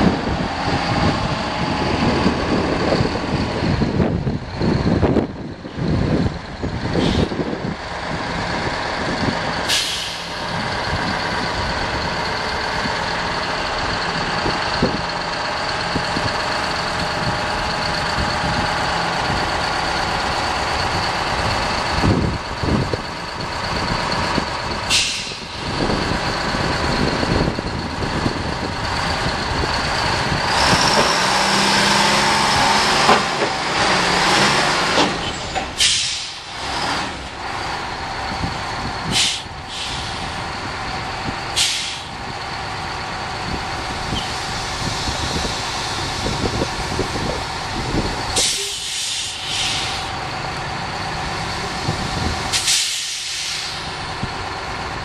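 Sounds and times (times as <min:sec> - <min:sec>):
truck diesel engine running: 0:00.0 - 0:55.0
air brake hissing: 0:07.0 - 0:07.4, 0:09.7 - 0:10.4, 0:24.9 - 0:25.7, 0:35.2 - 0:36.5, 0:39.0 - 0:40.4, 0:41.5 - 0:42.2, 0:48.4 - 0:50.1, 0:52.5 - 0:54.0.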